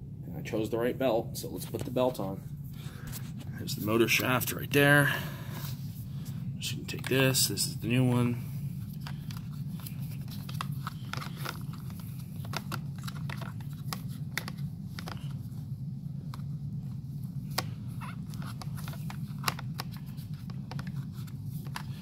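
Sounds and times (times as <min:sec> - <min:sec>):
steady low hum: 0:00.0 - 0:22.0
plastic parts clicking: 0:10.2 - 0:15.4.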